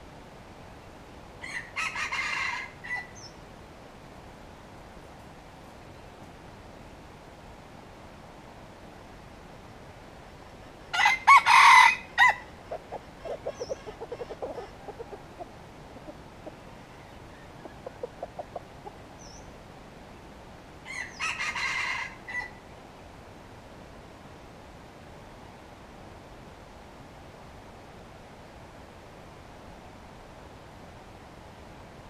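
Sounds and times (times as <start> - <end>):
rooster crowing: 1.4 - 3.2, 10.9 - 12.5, 20.8 - 22.6
low rapid clucking: 12.6 - 16.7, 17.4 - 19.0.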